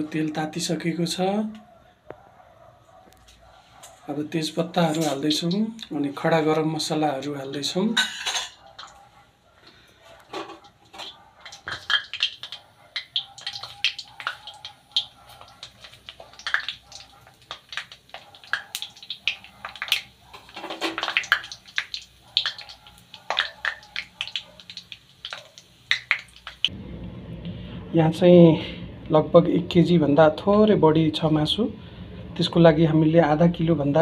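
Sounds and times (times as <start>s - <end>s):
spices crackling in hot oil: 7.2s - 9.0s, 10.6s - 26.7s.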